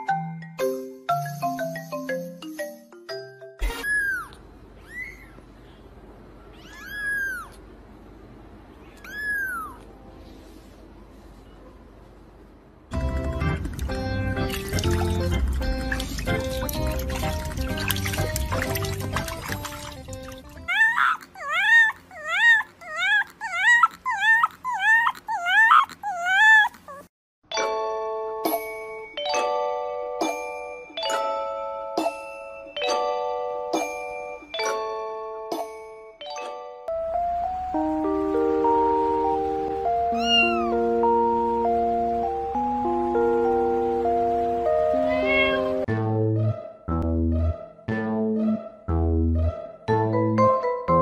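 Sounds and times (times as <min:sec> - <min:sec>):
kitten mewing: 0:06.5 - 0:07.6, 0:08.8 - 0:09.9, 0:20.6 - 0:27.1, 0:40.1 - 0:40.8, 0:44.9 - 0:45.8
puppy howling: 0:06.6 - 0:07.6, 0:09.0 - 0:09.8, 0:20.6 - 0:27.1, 0:40.1 - 0:40.8.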